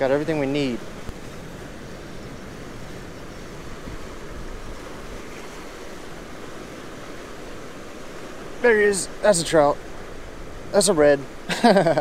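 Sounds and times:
wind on microphone: 0.0 - 8.6
surf washing against rocks: 0.0 - 12.0.

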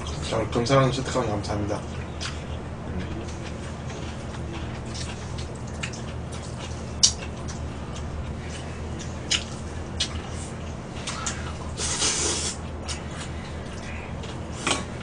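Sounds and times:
slurping noodles: 11.8 - 12.6.

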